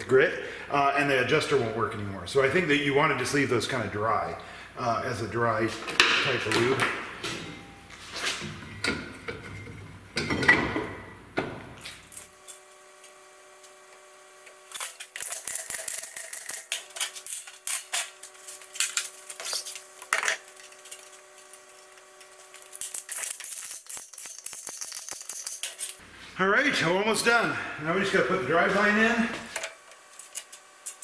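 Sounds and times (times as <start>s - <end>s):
faint steady hum: 0.0s - 23.2s
metal tools clinking: 14.8s - 26.0s.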